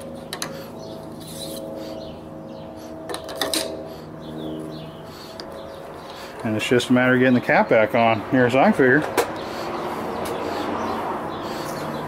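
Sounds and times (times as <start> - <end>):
steady background hum: 0.0 - 12.0.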